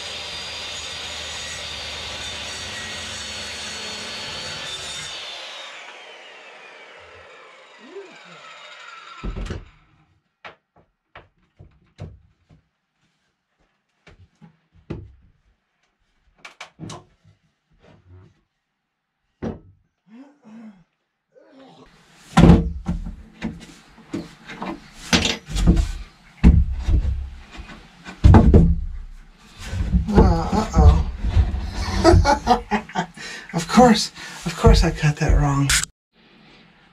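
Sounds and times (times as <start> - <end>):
wooden knocks and thuds: 10.4 - 12.6, 14.8 - 15.2, 19.4 - 19.8, 22.4 - 32.7.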